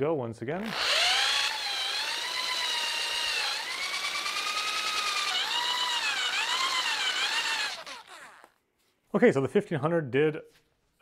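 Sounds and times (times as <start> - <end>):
power drill motor whine: 0.6 - 8.6.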